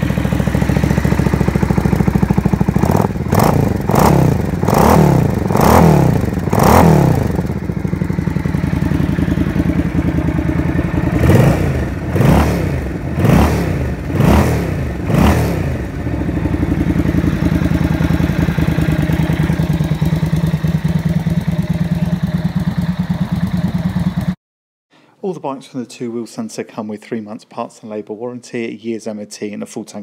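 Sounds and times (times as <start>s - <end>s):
motorcycle engine revving and idling: 0.0s - 24.4s.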